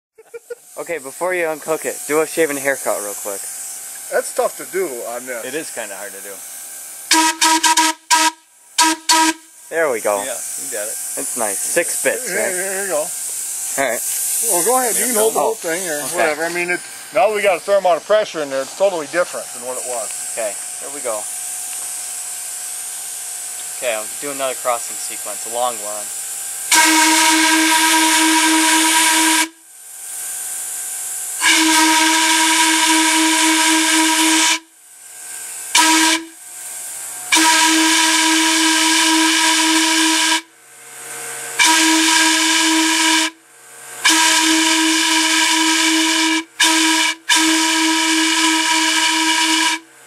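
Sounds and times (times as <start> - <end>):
low compressor hum: 0.2 - 29.8
air hiss: 0.2 - 49.9
air whistle hooting blasts: 7.1 - 9.8, 26.7 - 29.7, 31.4 - 34.8, 35.7 - 36.4, 37.3 - 40.5, 41.6 - 43.4, 44.0 - 49.9.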